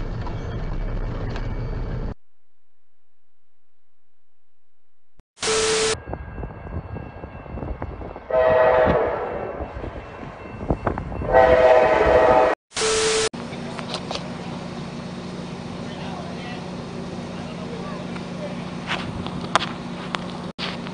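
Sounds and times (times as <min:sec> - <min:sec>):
static glitch noise: 0:05.4 - 0:06.0
steady beep: 0:05.4 - 0:06.0
train horn blowing: 0:05.4 - 0:06.0, 0:08.3 - 0:09.8, 0:11.2 - 0:13.3.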